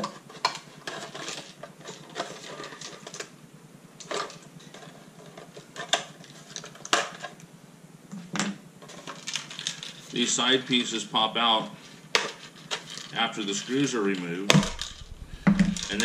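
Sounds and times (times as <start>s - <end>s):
plastic parts clicking and rattling: 0.0s - 3.3s, 4.0s - 7.4s, 8.8s - 10.2s, 12.2s - 13.2s.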